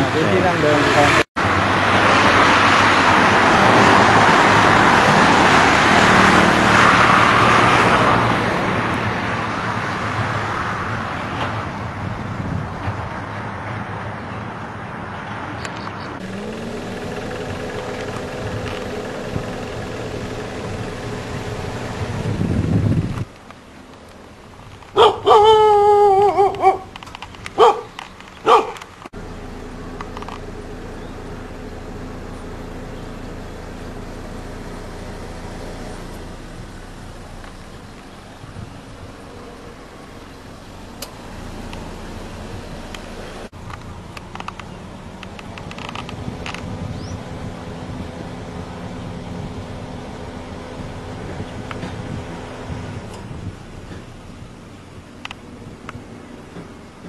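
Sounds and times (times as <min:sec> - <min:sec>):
highway traffic: 0:00.0 - 0:57.0
dog barking: 0:25.0 - 0:26.9, 0:27.6 - 0:28.8
dog howling: 0:25.0 - 0:26.9.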